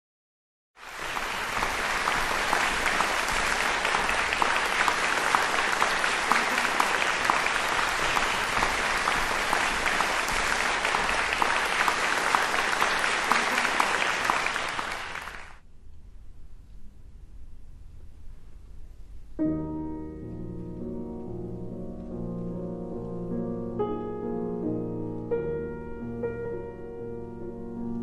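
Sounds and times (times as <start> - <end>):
audience clapping: 0.8 - 15.6.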